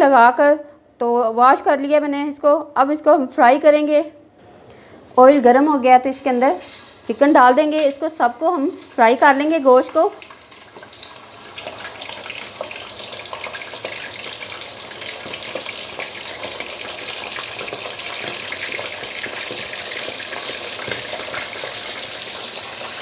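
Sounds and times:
chicken sizzling in hot oil: 6.2 - 23.0.

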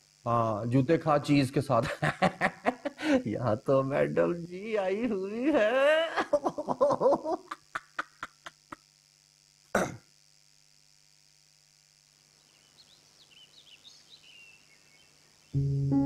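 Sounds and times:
man laughing: 1.8 - 3.5, 4.2 - 8.8
throat clearing: 9.8 - 10.0
faint bird chirps: 12.3 - 15.7.

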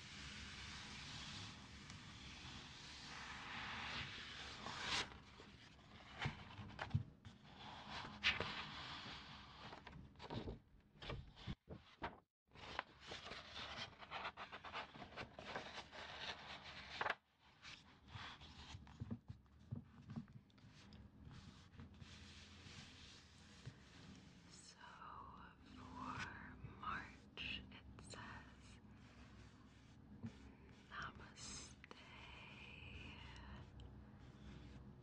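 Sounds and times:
scratching and rubbing on paper: 0.0 - 10.4, 20.0 - 24.5, 28.2 - 31.8, 33.2 - 35.0.

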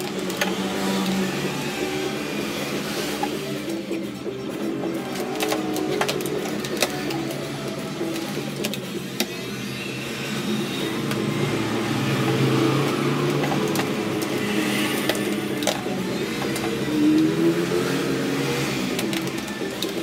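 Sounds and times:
engine running: 9.6 - 20.0.

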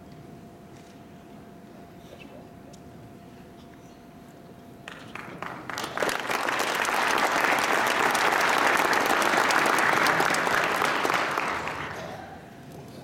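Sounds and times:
audience applause: 4.9 - 12.4.

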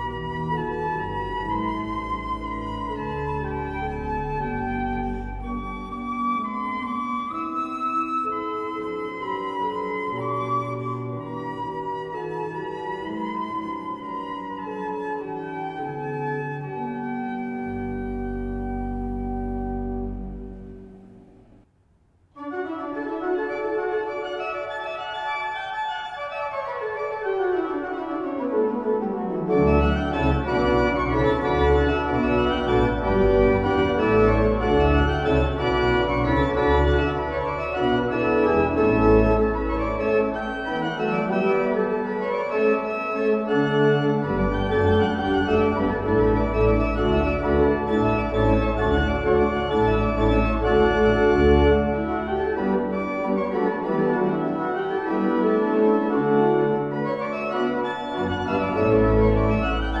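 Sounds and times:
pipe organ chords: 0.0 - 21.7, 22.4 - 60.0
deep organ bass line: 17.2 - 21.5, 29.6 - 41.6, 43.5 - 54.4, 57.0 - 60.0.

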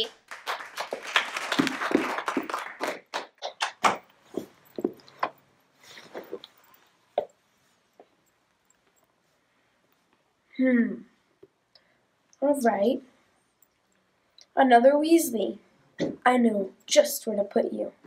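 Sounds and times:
child's footsteps on hard floor: 1.6 - 2.5, 3.4 - 5.4
clothing rustle: 4.1 - 10.3.

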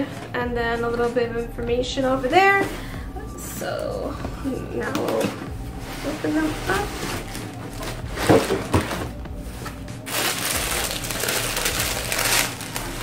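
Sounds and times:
tissue paper rustling: 5.2 - 13.0.

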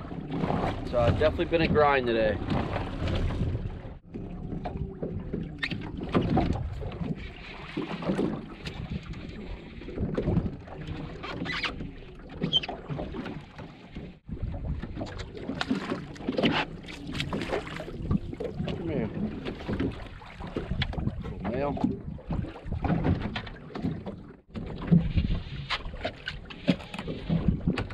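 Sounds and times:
wind buffeting microphone: 0.0 - 11.0, 14.2 - 15.4
water slapping boat hull: 0.0 - 27.9.

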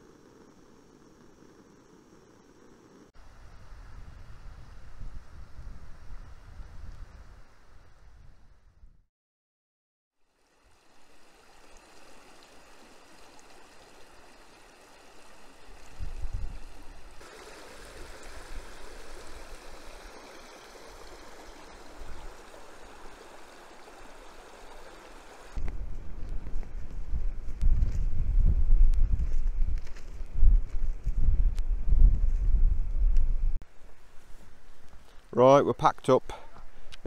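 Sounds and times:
wind rumble on microphone: 3.2 - 9.0, 15.8 - 17.2, 25.6 - 33.6
stream running over stones: 10.2 - 25.7.

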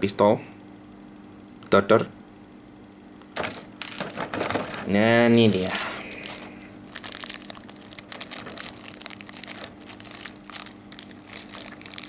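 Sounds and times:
faint steady hum: 0.0 - 12.0
plastic bag crinkling: 3.4 - 12.0.

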